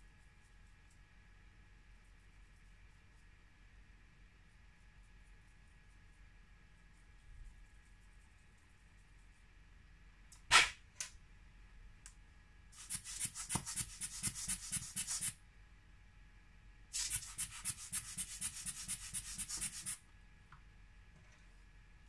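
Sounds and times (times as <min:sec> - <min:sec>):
rubbing on glass screen: 0:17.0 - 0:20.0.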